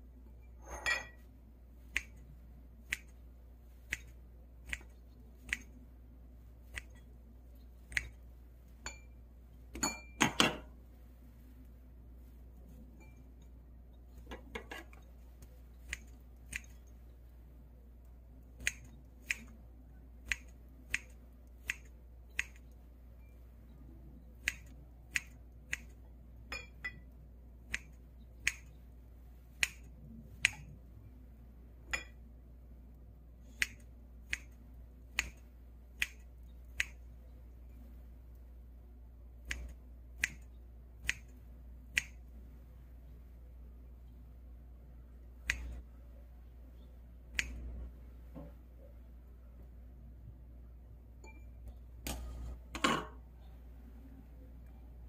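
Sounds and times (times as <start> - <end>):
scissors snipping: 1.9 - 2.3, 2.9 - 3.2, 3.9 - 5.8, 6.7 - 7.1, 7.9 - 8.2, 14.8 - 16.9, 18.6 - 19.6, 20.3 - 22.7, 24.4 - 26.0, 27.7 - 28.7, 29.6 - 30.7, 33.5 - 34.6, 35.2 - 35.4, 36.0 - 36.2, 39.5 - 41.3, 45.4 - 45.8.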